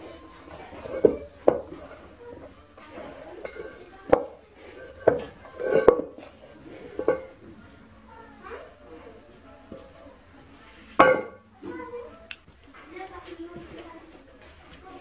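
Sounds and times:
metal bowl clanking: 0.0s - 7.8s, 9.6s - 12.0s.

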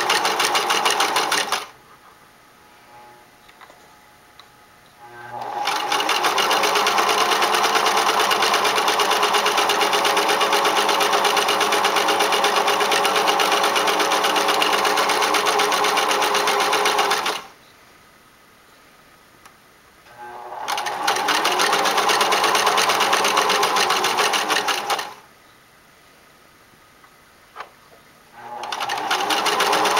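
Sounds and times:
electric sewing machine stitching: 0.0s - 1.7s, 5.0s - 17.5s, 20.1s - 25.2s, 28.4s - 29.9s.

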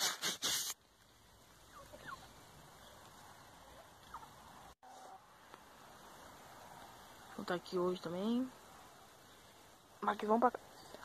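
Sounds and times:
low steady hiss: 0.1s - 11.0s
chickens calling: 1.6s - 5.2s.

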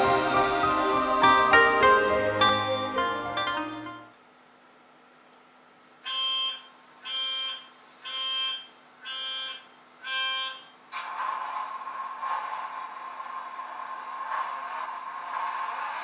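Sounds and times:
warning buzzer beeps: 6.1s - 10.7s.

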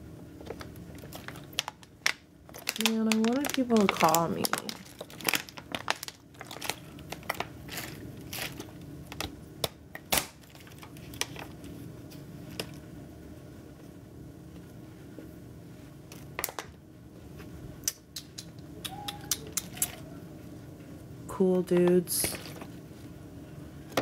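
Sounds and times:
low room hum: 0.0s - 24.0s
crinkly rustles: 0.4s - 9.3s, 10.4s - 12.8s.

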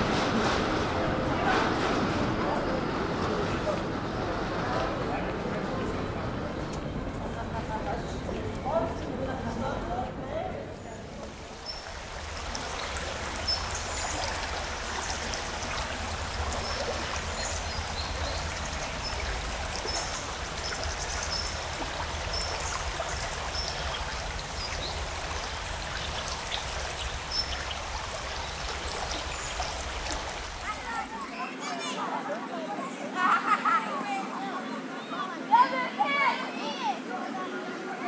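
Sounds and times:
river water flowing: 10.9s - 32.2s.

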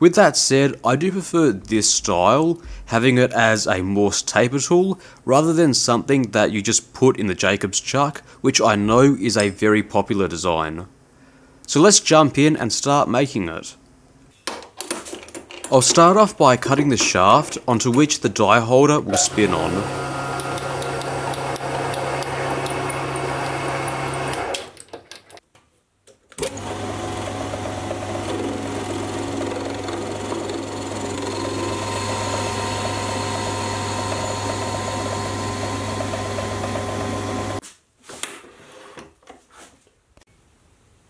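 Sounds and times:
lathe motor humming: 19.1s - 24.5s, 26.4s - 37.6s.

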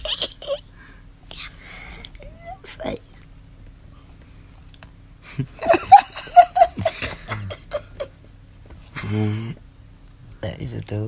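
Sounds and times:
woman giggling: 0.0s - 0.6s, 5.4s - 8.2s.

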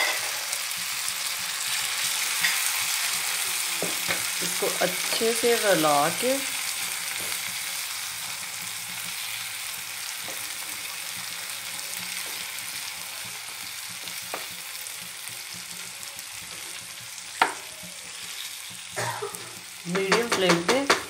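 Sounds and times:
vegetables sizzling in hot oil: 0.0s - 21.0s
spatula knocking against pan: 17.4s - 17.6s, 19.9s - 21.0s.

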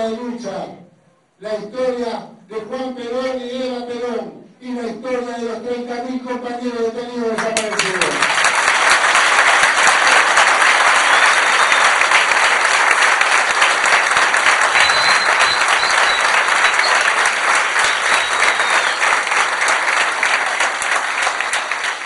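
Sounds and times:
large crowd applauding: 7.4s - 22.0s.

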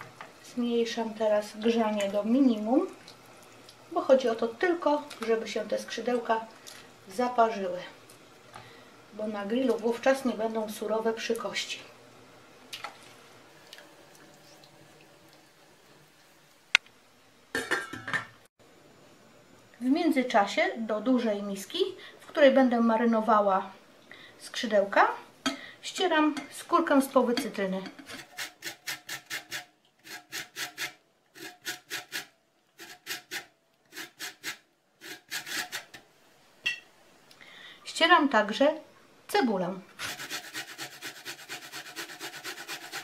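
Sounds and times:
grater rasping on lemon peel: 28.1s - 36.0s, 40.0s - 43.0s.

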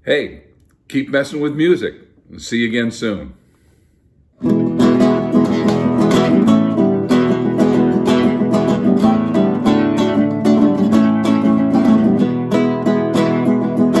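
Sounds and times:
classical guitar strumming: 4.4s - 14.0s.

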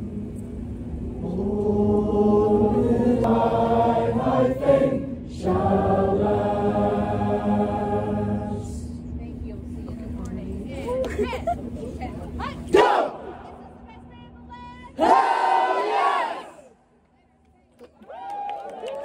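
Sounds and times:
choir singing held chords: 0.0s - 8.9s, 15.0s - 16.8s.

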